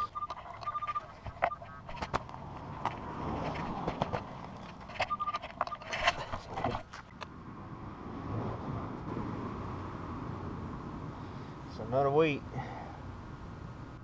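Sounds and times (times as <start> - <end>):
metal detector beep: 0.0 - 2.0, 5.0 - 6.2
scraping soil and clicking coin: 3.4 - 6.9
low steady rumble: 7.1 - 14.0.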